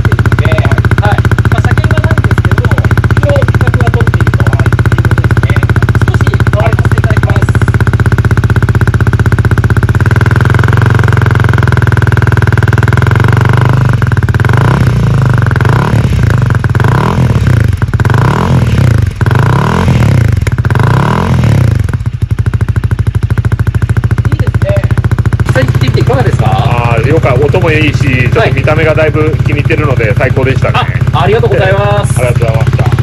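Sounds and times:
motorcycle engine idling and revving: 0.0s - 33.0s.

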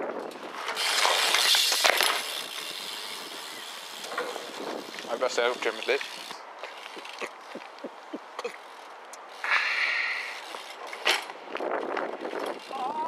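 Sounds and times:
bike tyre sliding hiss: 9.4s - 10.7s.

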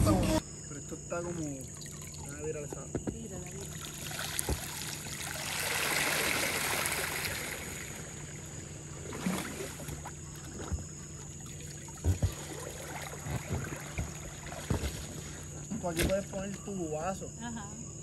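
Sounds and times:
water pouring off pool float: 1.4s - 15.6s
float thumping on water: 2.1s - 7.7s, 9.1s - 16.4s.

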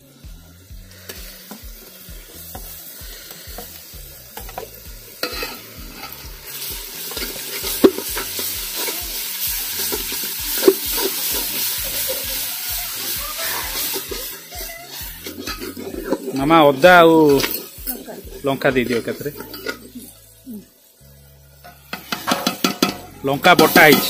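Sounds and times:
onions sizzling in oil: 0.0s - 24.0s
metal spoon scraping pot: 4.4s - 9.0s, 13.8s - 16.5s, 18.9s - 20.2s
spoon clinking against pot: 21.9s - 23.0s.

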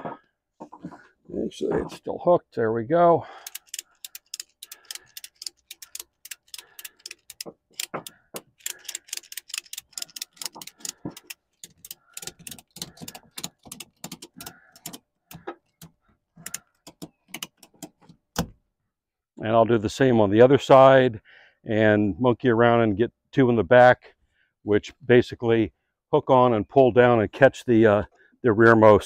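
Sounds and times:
ratchet strap clicking: 3.3s - 18.1s.

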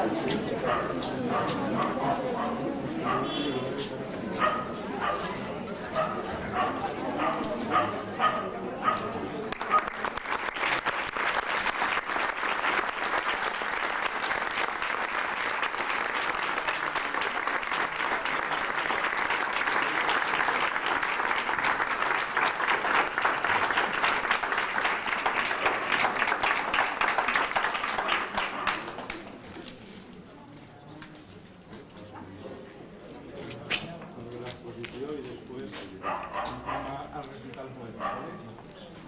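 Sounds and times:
crowd applauding: 9.4s - 29.4s.

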